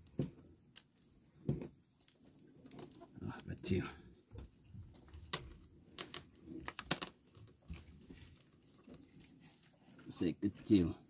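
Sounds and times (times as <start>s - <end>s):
fishing line clicking and rustling: 0.0s - 10.8s.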